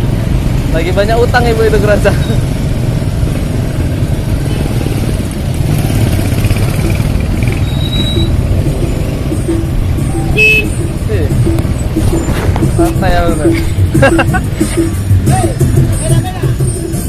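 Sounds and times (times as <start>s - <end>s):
motorbike engines rumbling: 0.0s - 17.0s
short horn beep: 10.2s - 10.9s.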